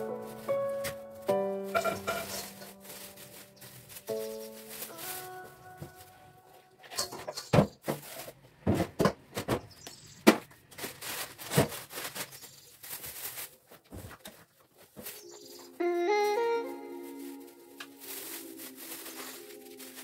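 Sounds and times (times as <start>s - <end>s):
kitchenware knocking and clinking: 1.7s - 2.6s.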